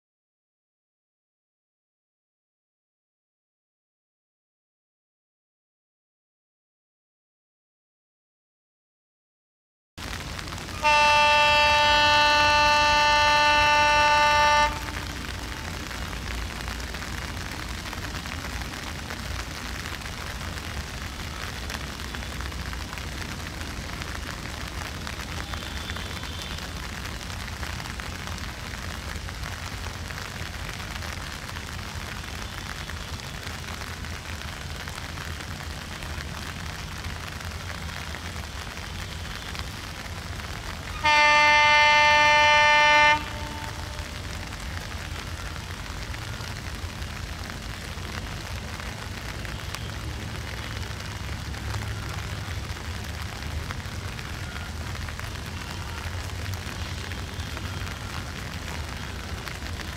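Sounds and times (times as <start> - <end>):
rain hissing: 10.0 - 59.9
locomotive air horn blast: 10.6 - 16.0, 41.0 - 44.5.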